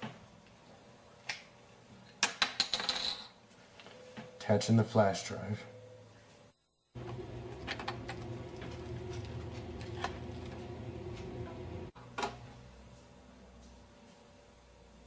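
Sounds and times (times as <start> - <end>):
steady low hum: 4.0 - 15.0.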